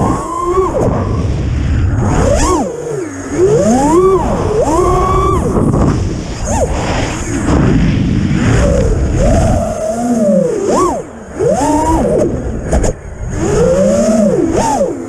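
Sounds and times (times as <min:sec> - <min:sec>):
quadcopter motors whining: 0:00.0 - 0:15.0
wind rushing over microphone: 0:00.0 - 0:15.0.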